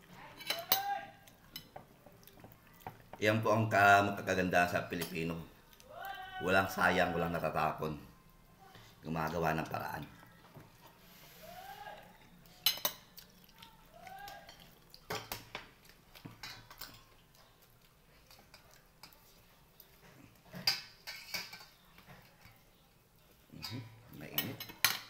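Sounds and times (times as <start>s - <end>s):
dishes and pot clinking: 0.3s - 3.3s, 12.6s - 13.1s, 14.2s - 17.1s, 20.0s - 22.6s, 23.5s - 25.0s.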